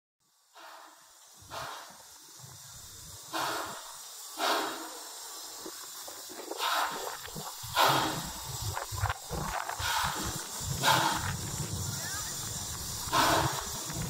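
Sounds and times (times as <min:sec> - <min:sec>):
steam locomotive chuffing: 0:00.2 - 0:14.0
low rumble: 0:06.6 - 0:14.0.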